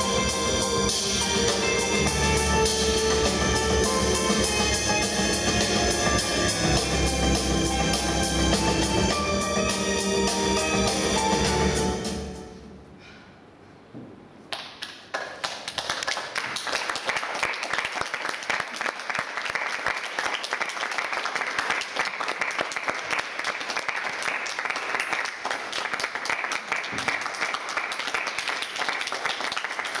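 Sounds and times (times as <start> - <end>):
audience applauding: 14.5 - 30.0.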